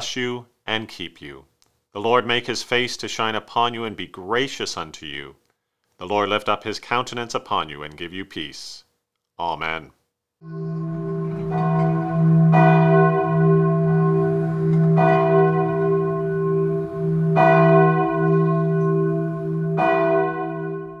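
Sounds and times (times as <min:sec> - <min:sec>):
church bell tolling: 0:10.4 - 0:21.0
steady low hum: 0:10.5 - 0:21.0.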